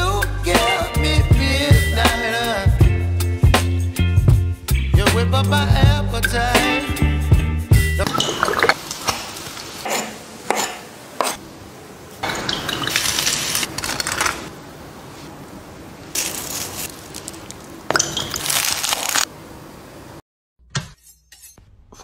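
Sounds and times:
scraping and handling noises: 16.1 - 17.8
knife crunching through toast: 16.2 - 19.3.

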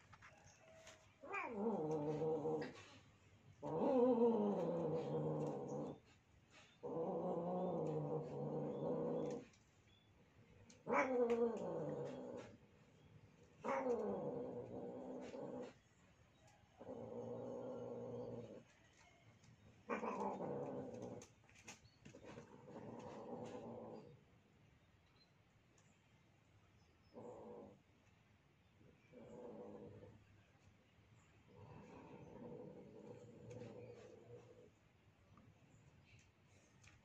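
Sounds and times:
cats yowling: 1.2 - 2.7, 10.8 - 12.0.

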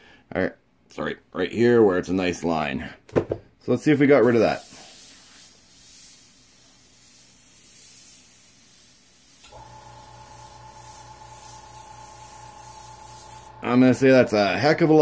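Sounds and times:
airbrush spraying air hiss: 4.2 - 14.2.

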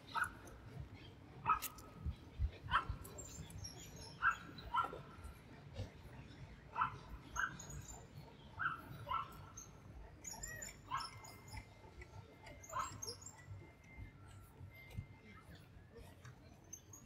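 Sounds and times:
low street hum: 0.0 - 17.0.

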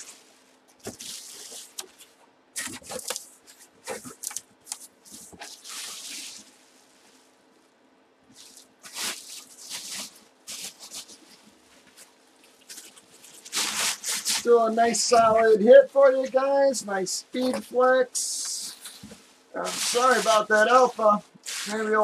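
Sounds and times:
plastic bag crinkling: 0.8 - 7.1, 8.3 - 15.2, 18.7 - 22.0.

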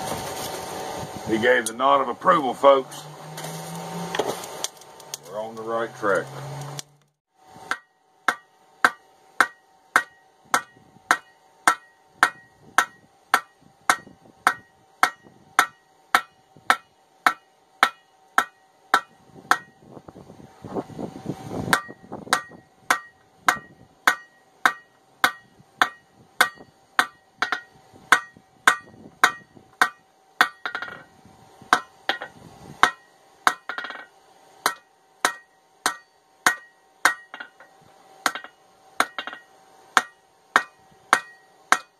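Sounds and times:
hammer striking steel on anvil: 7.6 - 19.8, 21.7 - 31.1, 31.7 - 41.9.

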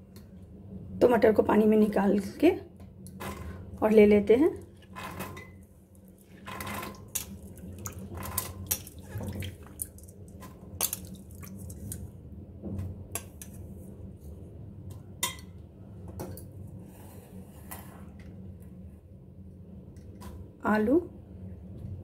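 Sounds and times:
dripping water: 6.0 - 12.0.

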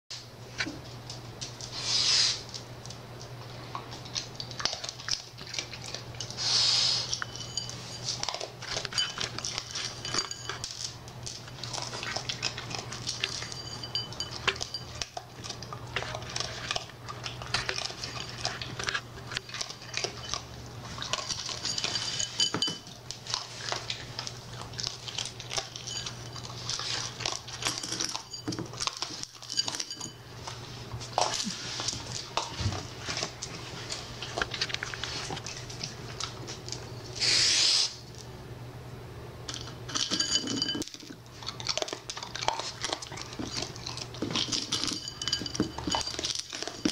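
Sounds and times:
raccoon crunching kibble: 0.5 - 38.3, 39.4 - 46.9
kibble clinking in ceramic bowl: 4.1 - 30.6, 39.5 - 46.9.

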